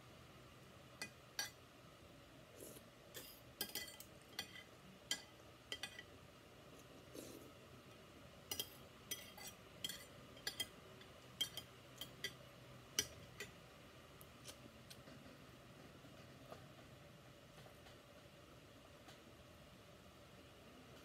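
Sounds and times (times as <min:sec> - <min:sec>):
cutlery clinking on ceramic plate: 0:03.2 - 0:06.1, 0:08.5 - 0:10.8, 0:11.4 - 0:12.4, 0:13.0 - 0:13.5.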